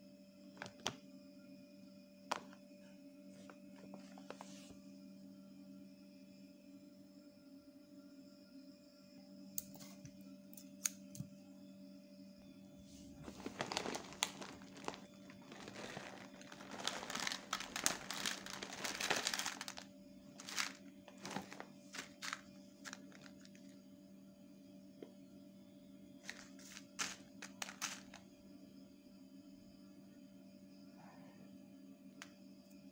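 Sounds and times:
plastic food bag crinkling: 13.2s - 23.7s, 26.2s - 28.2s.

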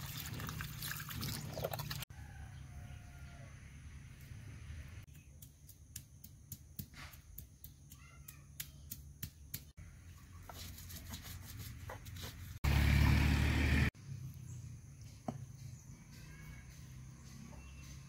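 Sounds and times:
stone pounding spices: 5.1s - 9.7s.

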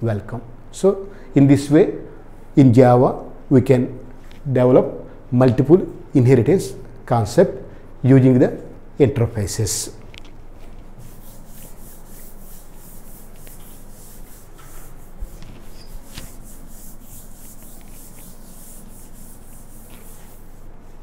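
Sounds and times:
rubbing strokes on glass: 11.0s - 20.7s.

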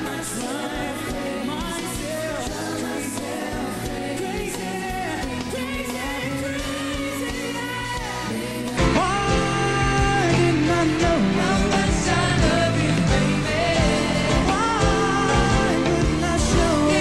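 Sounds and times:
backing harmonies: 0.0s - 17.0s
band accompaniment: 0.0s - 17.0s
man singing into a microphone: 8.8s - 17.0s.

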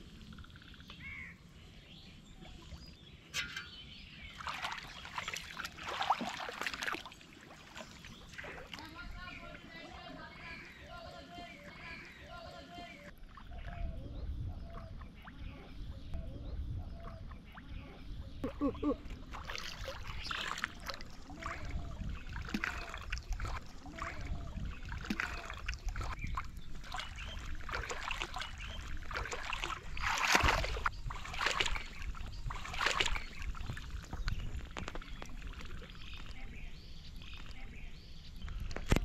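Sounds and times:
water splashing as person wades: 4.3s - 9.2s, 19.1s - 36.3s.

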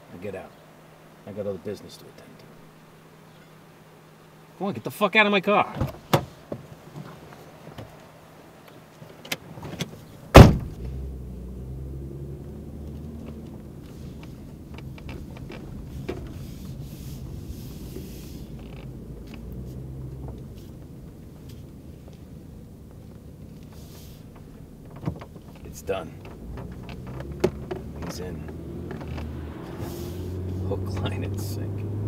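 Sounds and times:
car engine and road noise: 0.0s - 32.0s
car door slamming: 5.6s - 6.7s, 9.2s - 11.0s, 23.7s - 31.2s
car door clicking open: 5.7s - 7.1s, 9.1s - 10.9s, 22.9s - 29.8s.

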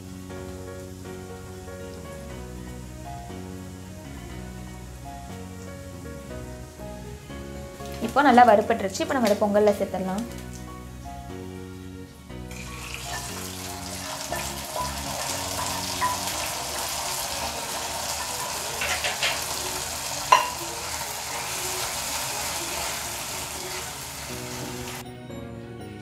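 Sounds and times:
hot ghee sizzling: 0.0s - 25.0s
metal ladle clinking on pot: 14.3s - 17.0s, 17.7s - 19.6s, 20.3s - 20.7s.

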